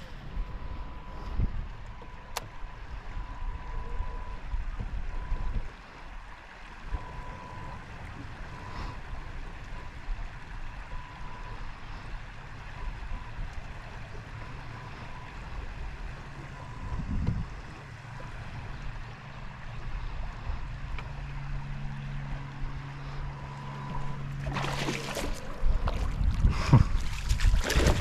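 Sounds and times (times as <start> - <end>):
wind buffeting microphone: 0.0 - 5.7, 14.7 - 22.9, 23.8 - 28.0
boat engine rumble: 0.0 - 28.0
low steady hum: 0.0 - 28.0.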